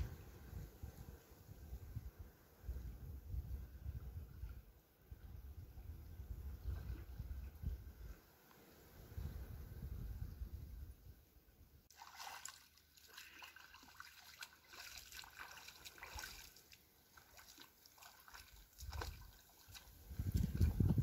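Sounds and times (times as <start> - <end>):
river water trickling on pebbles: 11.9 - 21.0.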